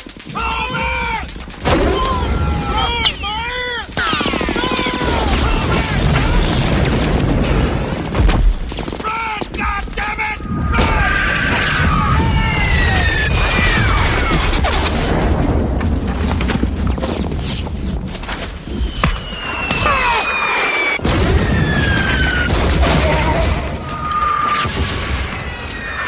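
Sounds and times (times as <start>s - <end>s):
explosions: 0.0s - 3.5s, 4.4s - 9.0s, 9.8s - 26.0s
rifle and machine-gun fire: 0.0s - 8.8s.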